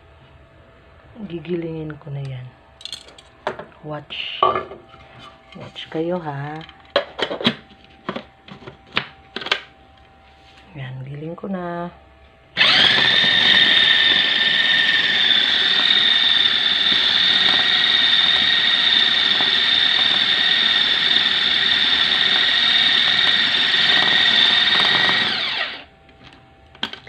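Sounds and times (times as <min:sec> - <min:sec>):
electric food chopper whining: 0:12.6 - 0:25.9.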